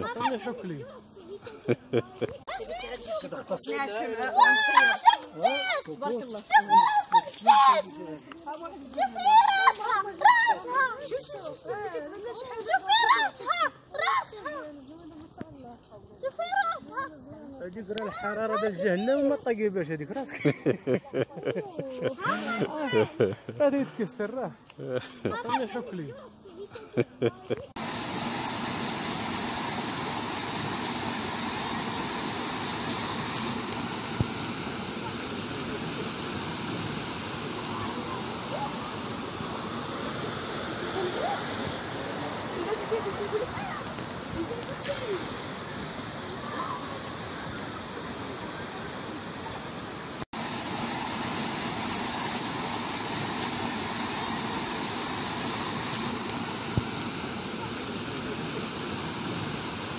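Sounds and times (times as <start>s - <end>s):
water rushing over weirs: 27.7s - 59.9s.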